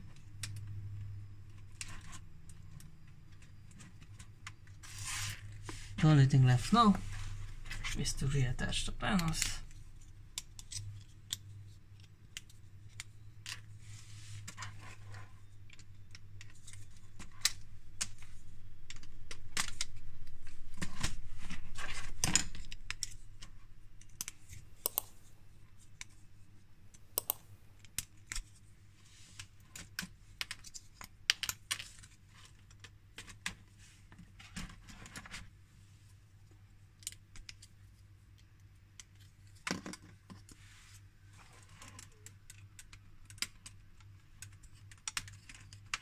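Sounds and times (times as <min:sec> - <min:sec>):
plastic parts clicking and rattling: 0:41.4 - 0:46.0.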